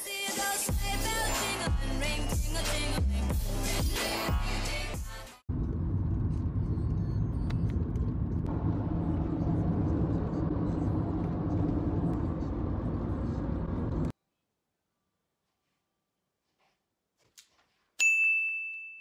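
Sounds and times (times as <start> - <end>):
car engine and road noise: 5.5 - 14.2.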